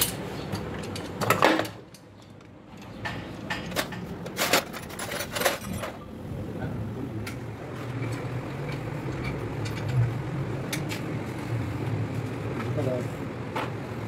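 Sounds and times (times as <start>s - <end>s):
metal engine parts clinking: 0.0s - 6.1s, 8.0s - 11.2s.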